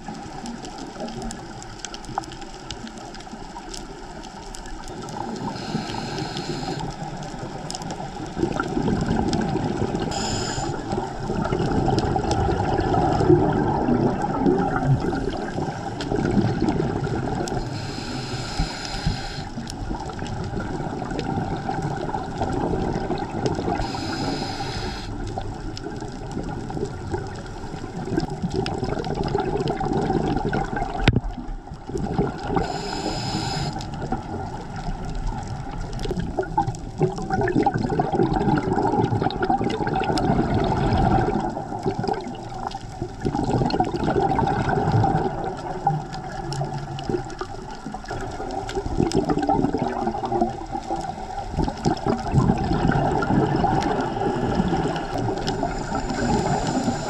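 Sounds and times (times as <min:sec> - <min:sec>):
exhaled bubbles underwater: 0:00.0 - 0:57.0
regulator inhale hiss: 0:05.2 - 0:07.3, 0:10.0 - 0:11.0, 0:17.6 - 0:19.7, 0:23.7 - 0:25.4, 0:32.6 - 0:34.0, 0:54.0 - 0:57.0.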